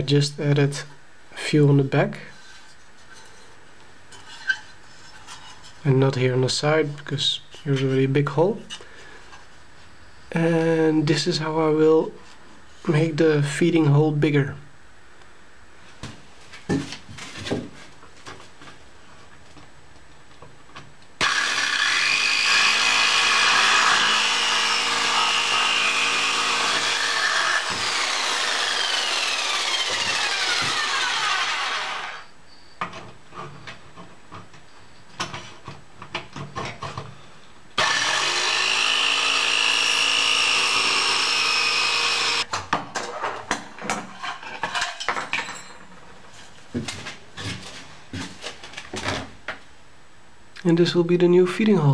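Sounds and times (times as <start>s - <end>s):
jigsaw cutting sheet metal: 21.2s - 32.3s, 37.8s - 42.5s.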